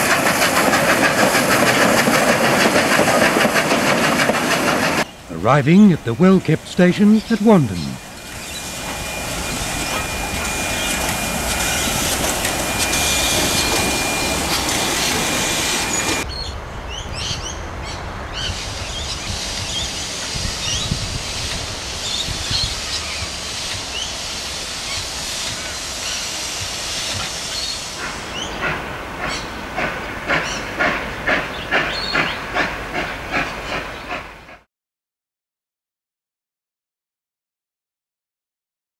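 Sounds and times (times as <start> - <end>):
steam hissing with thin tone: 0.0 - 16.2, 19.2 - 34.2
locomotive running noise: 0.0 - 16.3
steam locomotive chuffing: 0.0 - 16.3, 19.3 - 34.7.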